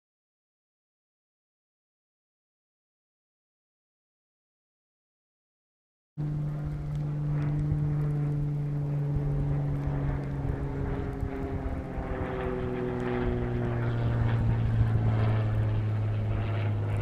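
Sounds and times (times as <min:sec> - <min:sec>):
engine drone: 0:06.2 - 0:17.0.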